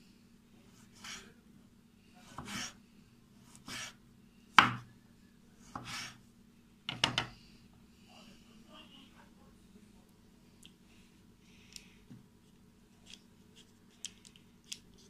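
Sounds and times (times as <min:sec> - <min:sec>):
knife slicing sausage: 0:02.3 - 0:02.8
knife knocking on wooden board: 0:06.9 - 0:07.3.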